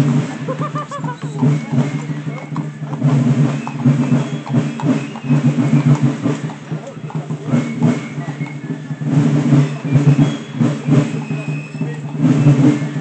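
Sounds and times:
irregular drum strokes: 0:00.0 - 0:13.0
people's voices: 0:00.0 - 0:13.0.

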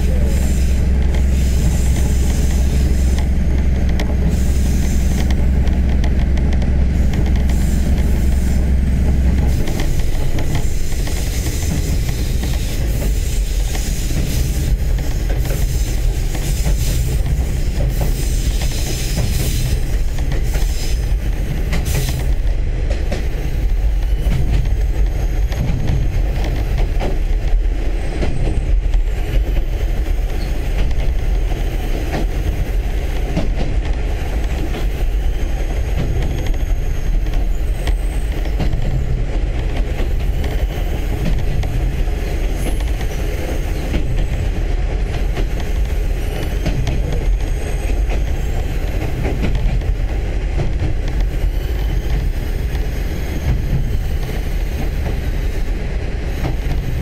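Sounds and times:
train engine rumble: 0:00.0 - 0:57.0.

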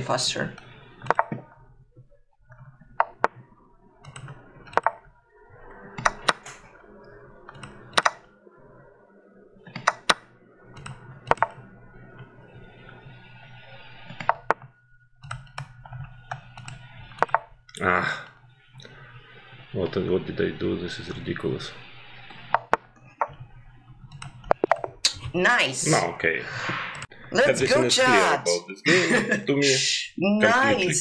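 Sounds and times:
chess move sounds: 0:00.6 - 0:01.6, 0:02.5 - 0:05.1, 0:09.7 - 0:11.6, 0:13.8 - 0:14.7
mouse clicks: 0:07.6 - 0:08.2, 0:10.8 - 0:11.6.

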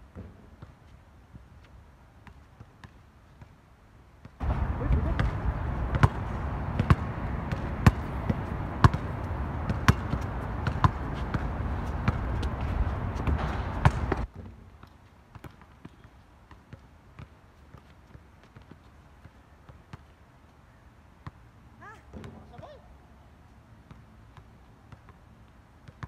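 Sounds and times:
steady rushing noise: 0:04.4 - 0:14.3
basketball bouncing on court: 0:04.4 - 0:14.5.

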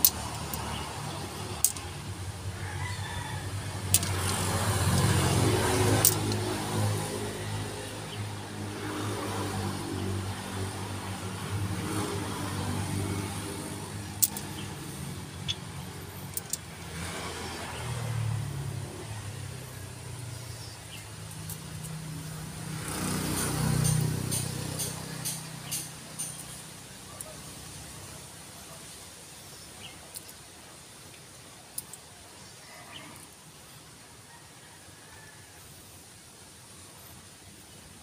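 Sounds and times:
light metal clicks: 0:03.9 - 0:05.2, 0:14.2 - 0:14.7, 0:16.3 - 0:16.7.

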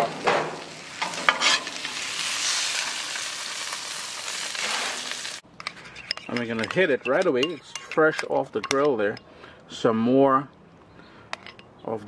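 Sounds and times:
fish sizzling on griddle pan: 0:00.0 - 0:05.4
metal spatula lifting fish: 0:01.0 - 0:01.8.

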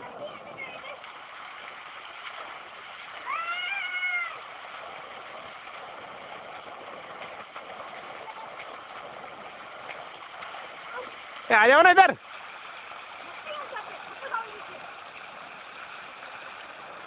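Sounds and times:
water gushing into pool: 0:00.0 - 0:17.0
high drawn-out cry: 0:03.2 - 0:04.4.

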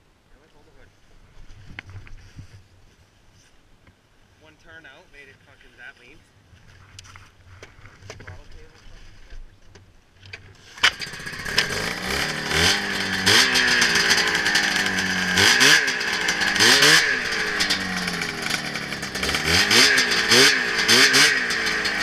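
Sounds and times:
snowmobile engine starting and revving: 0:10.4 - 0:22.0.

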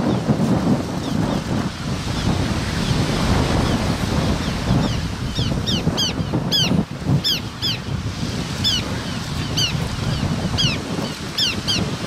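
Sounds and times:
surf washing on shore: 0:00.0 - 0:12.0
wind buffeting microphone: 0:00.0 - 0:12.0.

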